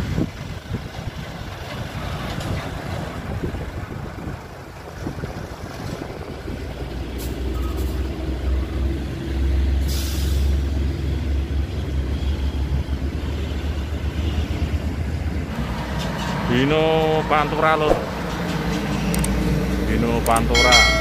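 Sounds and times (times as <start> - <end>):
diesel truck engine rumbling: 0.0 - 21.0
air brakes hissing: 9.7 - 10.8.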